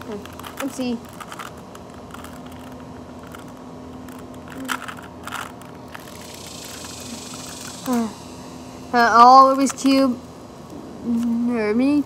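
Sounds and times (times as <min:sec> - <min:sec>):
faint steady background hum: 0:00.0 - 0:12.0
plastic cube layers clicking: 0:00.1 - 0:08.0.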